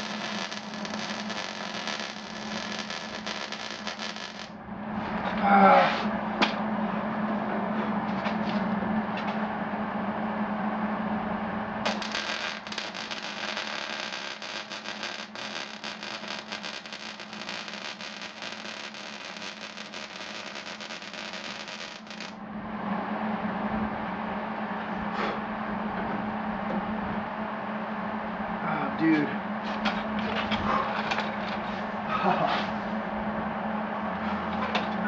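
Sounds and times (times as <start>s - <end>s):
arc welder crackling: 0.0s - 4.6s, 11.8s - 22.4s
low hum: 0.0s - 35.0s.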